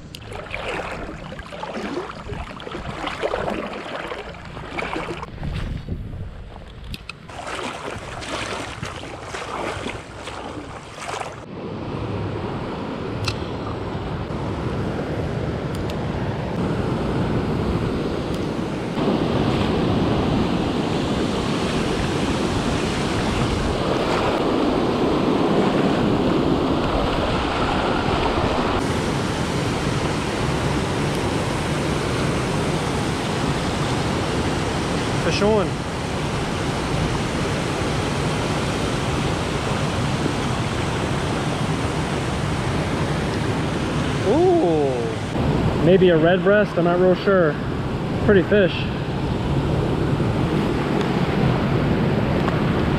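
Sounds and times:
water rushing over spillway: 0.1 - 5.3, 7.3 - 11.5, 20.9 - 46.8.

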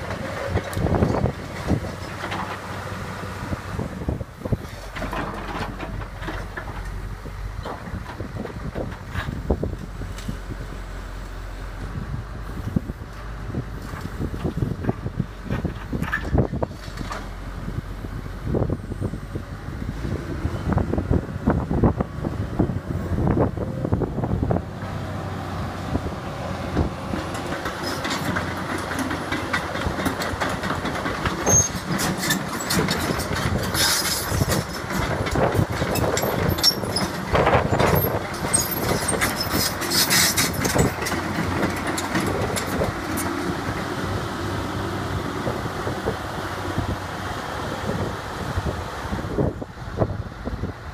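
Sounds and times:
excavator diesel engine running: 0.0 - 50.9
metallic clanks and rattles: 4.7 - 7.0, 13.8 - 17.3, 27.1 - 43.8.

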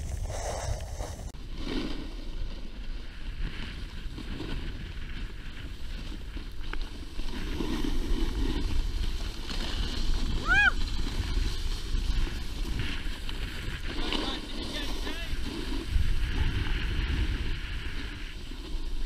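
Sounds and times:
snowboard scraping over snow: 0.0 - 19.0
wind rushing over microphone: 0.0 - 19.0.

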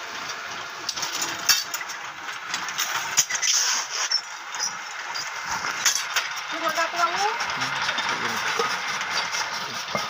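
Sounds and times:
rice crackling and hissing: 2.8 - 4.2.

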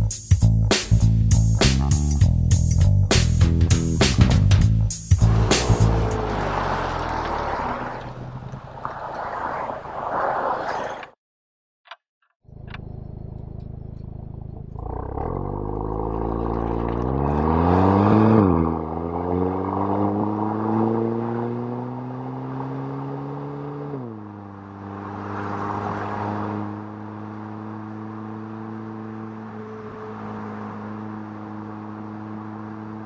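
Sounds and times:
car engine accelerating: 5.2 - 10.4, 12.5 - 33.0
wind and road rush: 5.2 - 11.2, 15.2 - 33.0.

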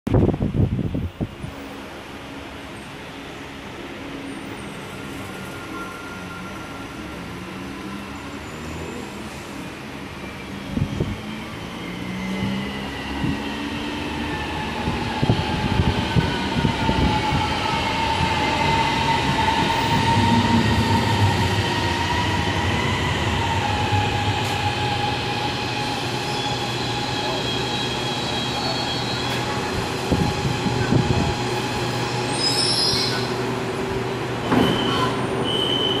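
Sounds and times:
train wheels rumbling on rail: 8.6 - 36.0.

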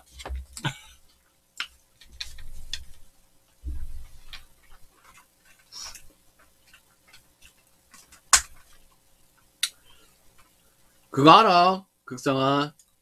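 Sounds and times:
low thuds: 3.6 - 4.3.

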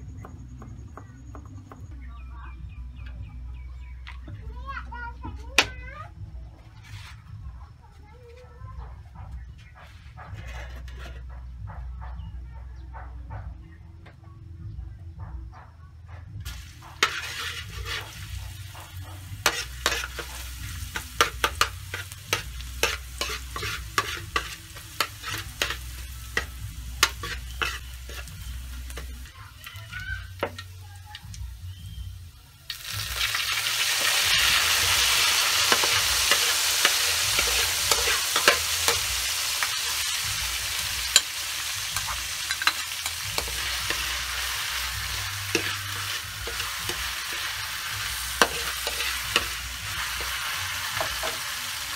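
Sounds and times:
metal spatula scraping a wok: 9.8 - 11.4, 16.5 - 29.3, 34.0 - 51.9
loud steady sizzle: 16.4 - 51.9
garlic sizzling in oil: 16.5 - 51.9.

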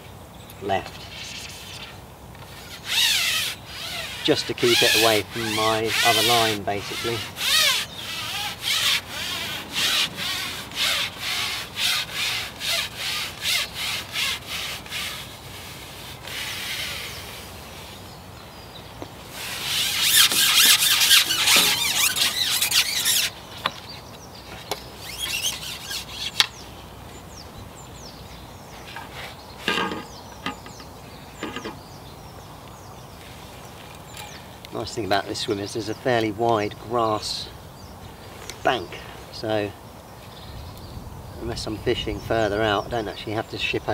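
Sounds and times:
fishing pole rubbing: 1.0 - 18.0, 19.3 - 23.4, 25.0 - 26.5.

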